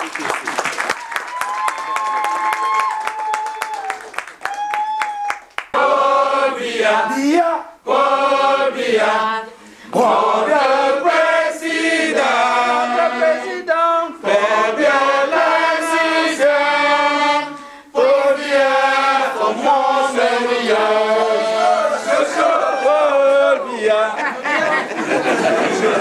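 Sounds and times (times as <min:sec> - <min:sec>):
voices singing: 0:05.8 - 0:26.0.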